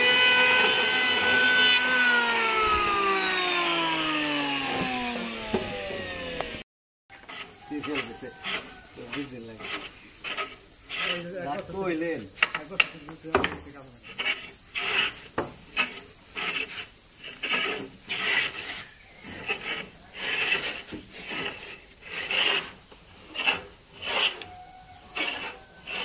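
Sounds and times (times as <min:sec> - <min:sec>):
woodwork scraping strokes: 0:00.0 - 0:26.0
crickets shrilling: 0:07.1 - 0:26.0
sharp knocks: 0:12.4 - 0:13.7, 0:15.4 - 0:15.6.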